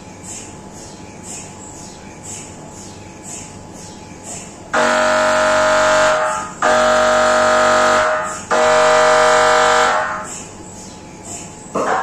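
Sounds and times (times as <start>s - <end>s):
mri scanner buzzing: 4.7s - 10.9s.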